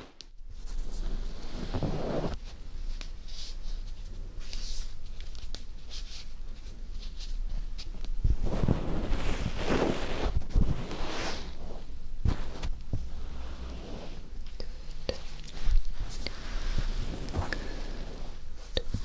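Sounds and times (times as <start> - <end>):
scratching and rubbing on microphone: 0.6 - 2.4, 7.0 - 14.3.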